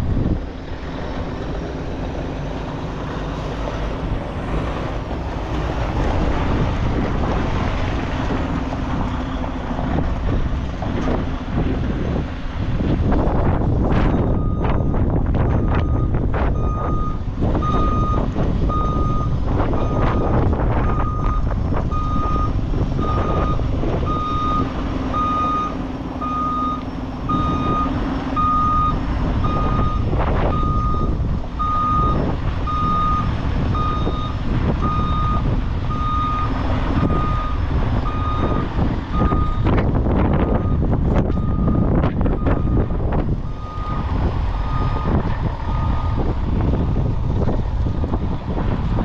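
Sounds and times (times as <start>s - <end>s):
truck engine rumble: 0.0s - 49.0s
truck backup alarm beeping: 13.9s - 47.3s.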